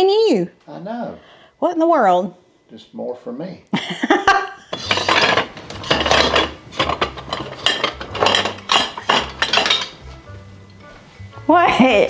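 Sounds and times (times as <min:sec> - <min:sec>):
utensils scraping dishes and pans: 0:04.7 - 0:10.2.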